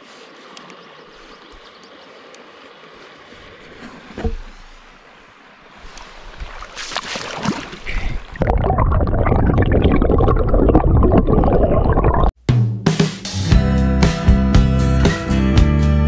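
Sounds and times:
fish splashing in river water: 0.0 - 8.4
muffled underwater rushing: 0.0 - 12.3.

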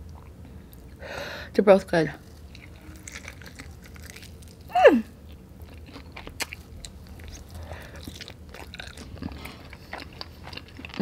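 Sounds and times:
person chewing chicken wing: 2.4 - 11.0.

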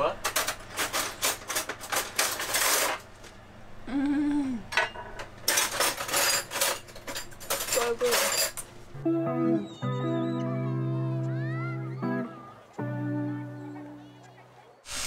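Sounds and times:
person humming: 3.8 - 4.7.

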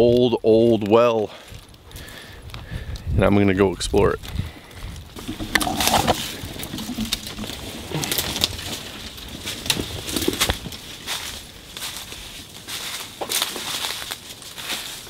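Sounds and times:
footsteps crunching dry leaves: 4.2 - 15.0
twigs snapping: 4.2 - 15.0
brush scraping: 5.2 - 11.3.

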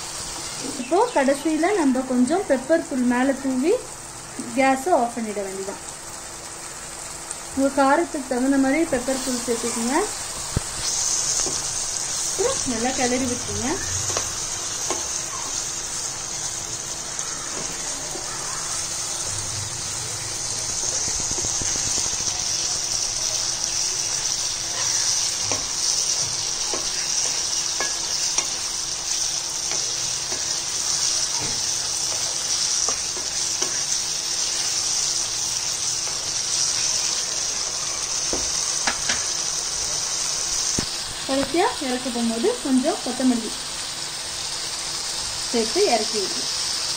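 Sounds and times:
gravy sizzling in a pan: 0.0 - 46.9
spatula scraping and tapping pan: 10.4 - 12.9, 14.1 - 15.2, 25.4 - 28.7.

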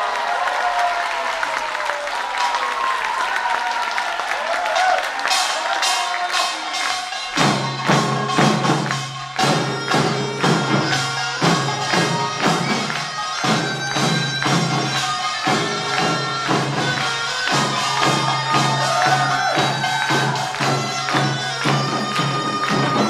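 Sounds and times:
drums beating: 2.4 - 23.0
small metal gongs: 4.9 - 23.0
reedy shawm melody: 5.2 - 23.0.

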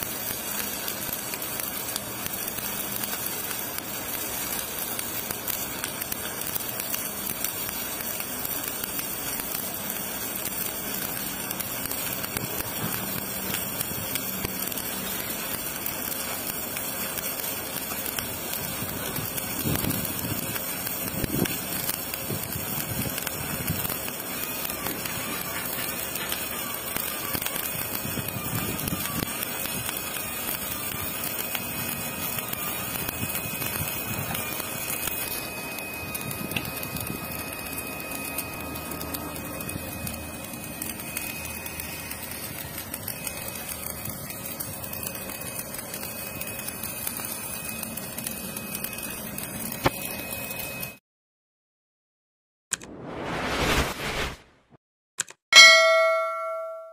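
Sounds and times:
welding arc crackling: 0.0 - 51.0.

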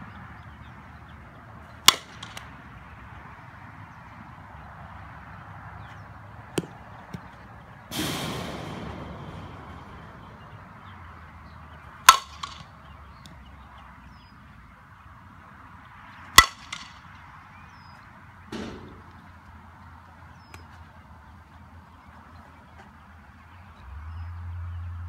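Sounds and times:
bat cracking softball: 1.6 - 2.7, 6.4 - 11.0, 11.8 - 13.5, 16.3 - 17.8, 18.5 - 19.5
dull thump: 18.5 - 19.3.

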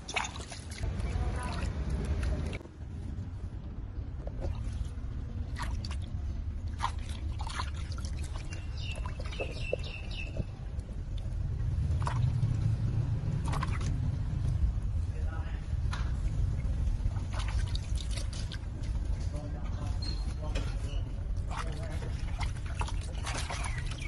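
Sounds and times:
water splashing in plastic basin: 0.0 - 2.6, 4.3 - 14.2, 16.6 - 19.2, 21.4 - 24.0
low rumble: 0.8 - 19.9.

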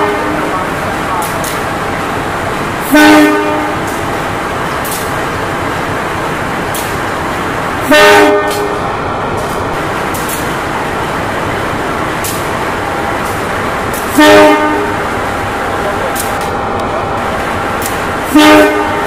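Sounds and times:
locomotive horn toots: 0.0 - 1.3, 2.8 - 4.0, 7.8 - 8.8, 13.9 - 15.0, 18.2 - 19.0
diesel locomotive engine: 0.0 - 19.0.

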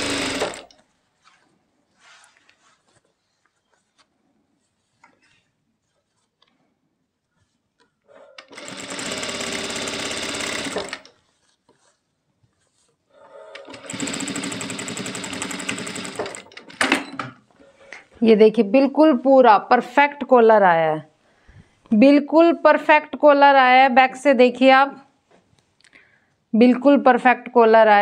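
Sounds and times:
sewing machine running: 0.0 - 0.7, 8.4 - 11.1, 13.5 - 17.0.

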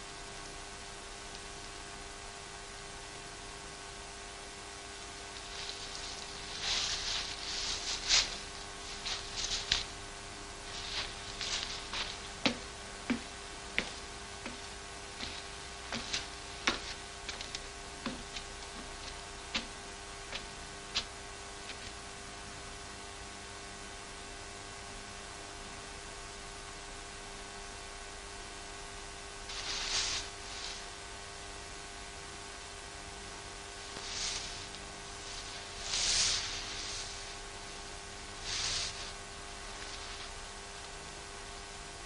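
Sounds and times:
steady hiss and hum: 0.0 - 42.0
soft rustling: 5.2 - 22.0, 29.5 - 31.0, 33.6 - 41.0.

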